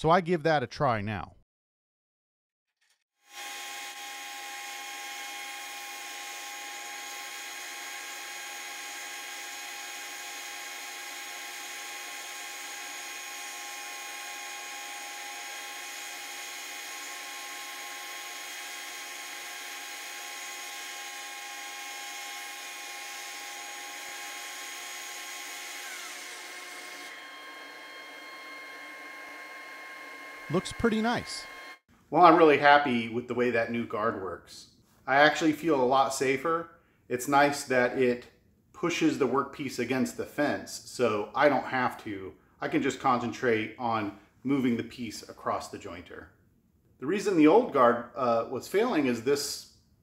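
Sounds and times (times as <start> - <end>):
motor whining and winding down: 3.2 - 31.8.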